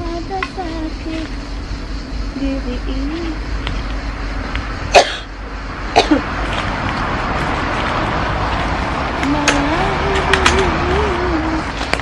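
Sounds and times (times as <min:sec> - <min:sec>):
low wavering hum: 0:00.0 - 0:12.0
outdoor background rush: 0:00.0 - 0:12.0
woman coughing: 0:04.9 - 0:05.3, 0:06.0 - 0:06.3
sharp clicks: 0:09.2 - 0:10.8.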